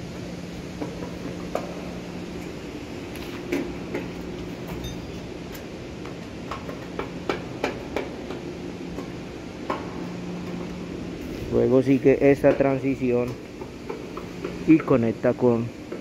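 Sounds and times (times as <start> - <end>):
low machinery hum: 0.0 - 16.0
sharp knocks on metal: 6.5 - 8.4.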